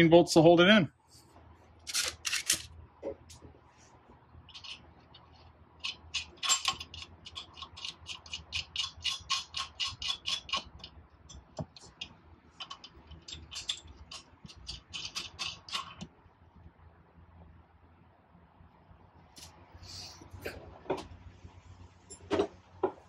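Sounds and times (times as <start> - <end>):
nuts spinning on bolts: 4.4 - 16.0.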